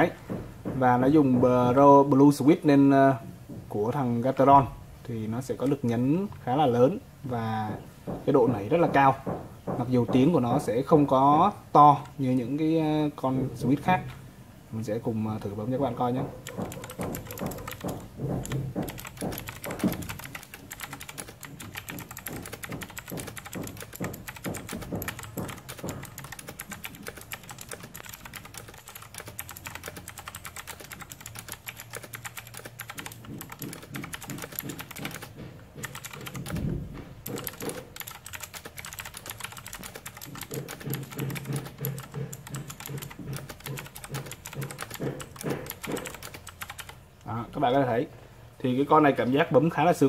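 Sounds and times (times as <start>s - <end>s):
mechanical keyboard typing: 16.0s - 47.3s.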